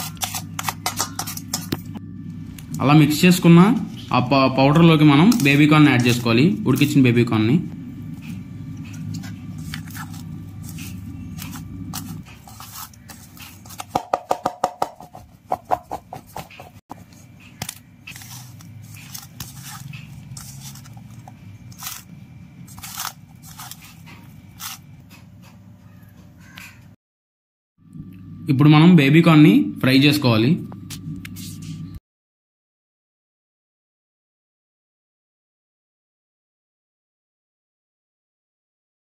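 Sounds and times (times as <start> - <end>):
food scraping in a steel bowl: 0.0 - 2.0, 8.2 - 14.0, 14.9 - 25.3.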